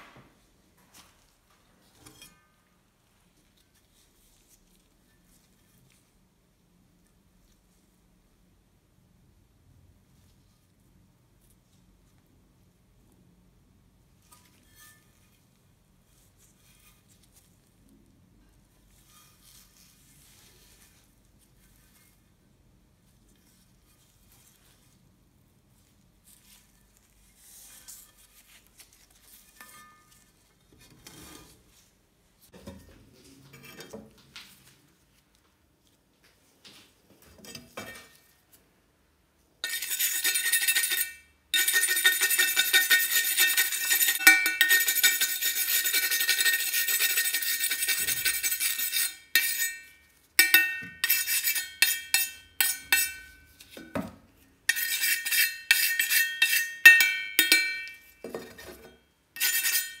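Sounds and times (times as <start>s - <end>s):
metal blade ringing: 39.6s - 45.2s, 48.9s - 53.4s, 54.7s - 58.2s, 59.4s - 60.0s
wire brush scraping metal blade: 39.6s - 53.8s, 54.7s - 60.0s.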